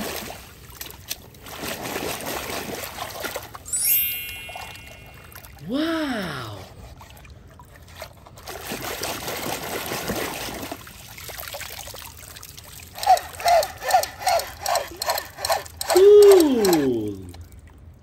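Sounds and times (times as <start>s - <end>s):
muddy water sloshing and splashing: 0.0s - 3.7s, 5.3s - 15.5s
short falling electronic chirps: 3.7s - 5.6s.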